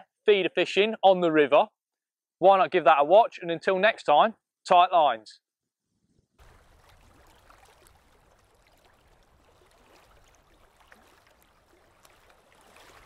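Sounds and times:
river water lapping: 6.4 - 13.0.

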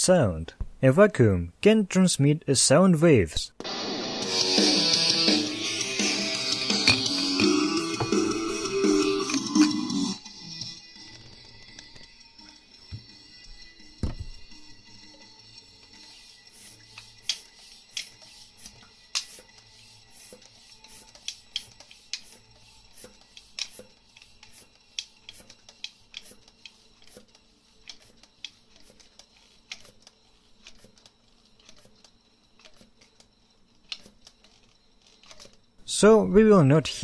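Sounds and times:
music from speaker in jar: 3.7 - 23.4.

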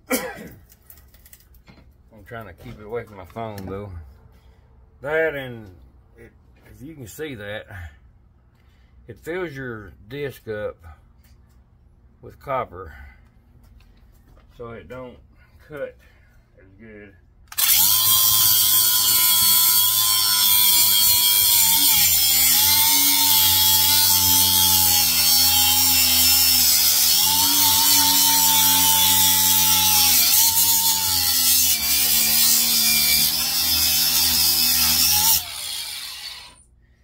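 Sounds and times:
angle grinder cutting metal: 17.5 - 36.6.

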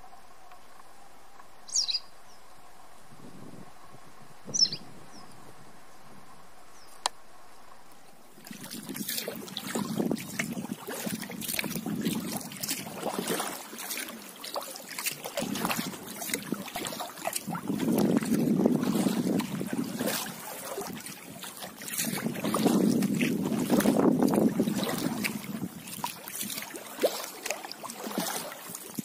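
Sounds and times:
kayak paddling splashes: 0.0 - 29.0
bird chirp: 1.7 - 2.4, 4.5 - 6.0.

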